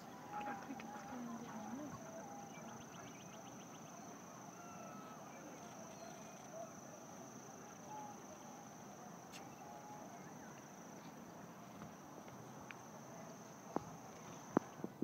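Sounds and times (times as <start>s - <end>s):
high-pitched insect trill: 0.4s - 11.1s.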